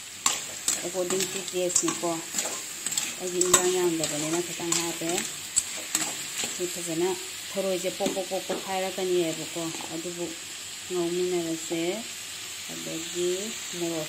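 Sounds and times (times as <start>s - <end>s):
metal spatula scraping wok: 0.0s - 10.4s
food sizzling: 0.0s - 14.0s.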